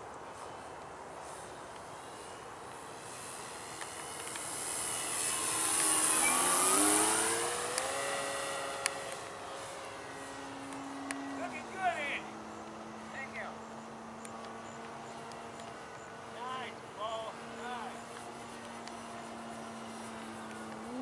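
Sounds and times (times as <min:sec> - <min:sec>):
model plane engine passing: 0:02.1 - 0:12.3, 0:15.1 - 0:21.0.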